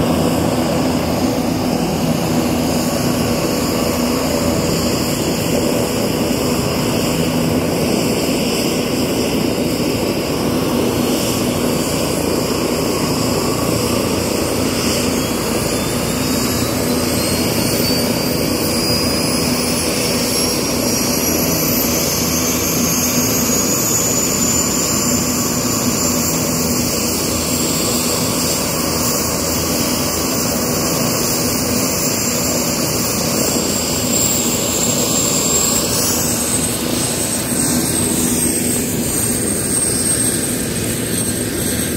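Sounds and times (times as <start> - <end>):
helicopter turbine rush: 0.0 - 41.9
turbine whine rising: 10.2 - 41.9.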